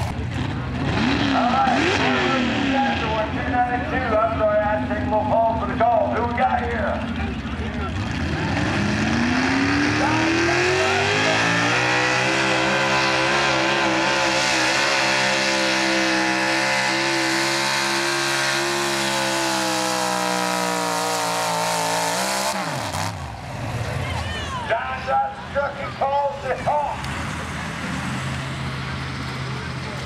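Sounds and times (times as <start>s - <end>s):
truck engine revving under load: 0.0s - 24.7s.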